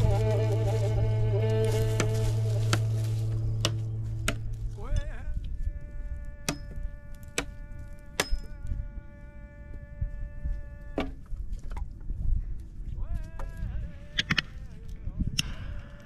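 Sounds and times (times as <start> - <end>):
buzzy synthesizer note bending up: 0.0 - 5.3
low wind rumble: 0.0 - 16.0
sharp percussive clicks: 14.2 - 14.5.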